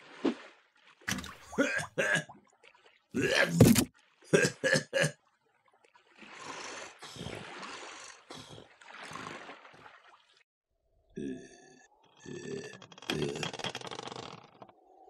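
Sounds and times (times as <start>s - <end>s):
man's loud vocal outburst: 3.2s - 3.8s
man's short vocal sounds: 3.2s - 4.6s.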